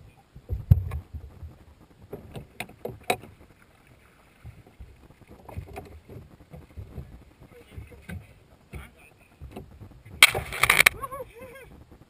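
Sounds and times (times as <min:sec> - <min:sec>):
knocks and thumps on boat hull: 0:00.4 - 0:03.4, 0:04.4 - 0:10.9.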